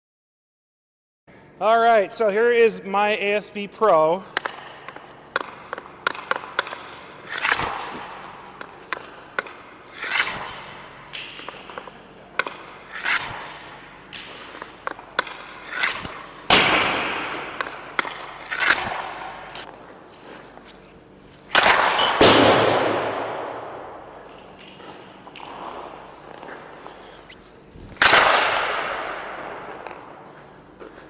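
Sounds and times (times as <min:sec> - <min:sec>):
sharp cracks of hockey shots: 0:03.2 - 0:20.6, 0:21.4 - 0:31.0
hockey stick blade clicking on puck: 0:04.3 - 0:19.8, 0:21.4 - 0:30.1.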